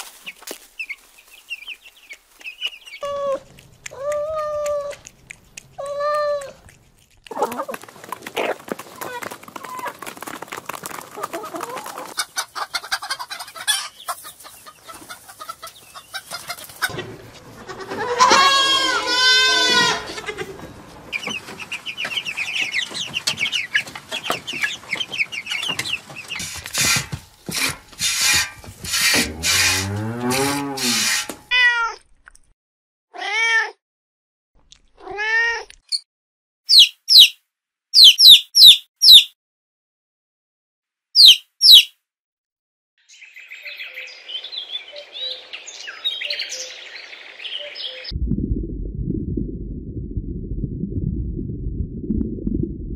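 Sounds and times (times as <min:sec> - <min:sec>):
chick peeping: 0:00.2 - 0:06.6, 0:08.3 - 0:09.9, 0:11.2 - 0:17.0, 0:21.1 - 0:26.6, 0:36.7 - 0:37.4, 0:38.0 - 0:39.3, 0:41.2 - 0:41.9
drawn-out falling calls: 0:07.3 - 0:17.0, 0:36.7 - 0:37.4, 0:41.2 - 0:41.9
chickens clucking and calling: 0:07.3 - 0:27.2.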